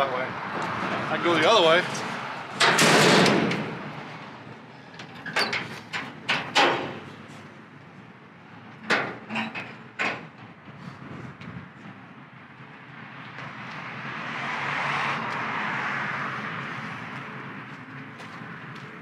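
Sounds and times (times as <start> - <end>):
metallic knocks and clacks: 2.5 - 3.8, 5.0 - 7.1, 8.8 - 10.5.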